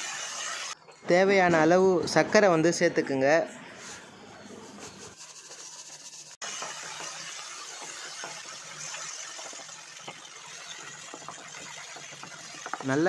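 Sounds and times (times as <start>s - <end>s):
steady sizzle: 0.0s - 0.8s, 5.0s - 13.0s.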